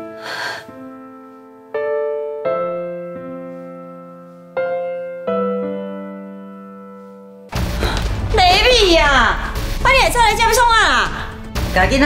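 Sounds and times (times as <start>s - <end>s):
slow piano chords: 0.0s - 8.4s.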